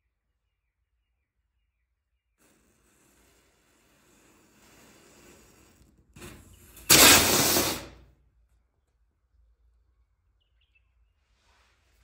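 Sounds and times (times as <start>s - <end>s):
burning matchsticks crackling: 2.4s - 8.0s
firework rushing hiss: 2.4s - 8.0s.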